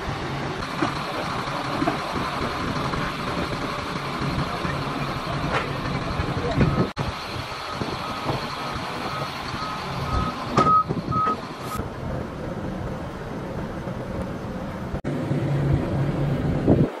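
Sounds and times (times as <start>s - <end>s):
heavy diesel equipment running: 0.0s - 17.0s
backup alarm beeping: 9.0s - 11.4s.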